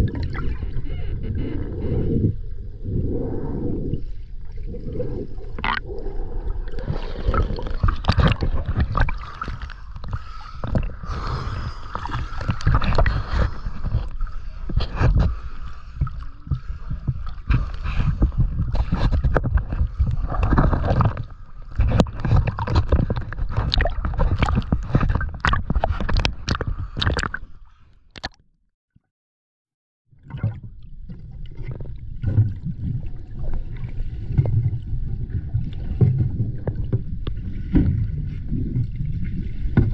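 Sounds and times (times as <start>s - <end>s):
water sloshing and gurgling: 0.0s - 28.5s, 30.1s - 39.9s
water splashes and knocks: 7.2s - 10.9s, 11.9s - 27.5s, 30.2s - 39.9s.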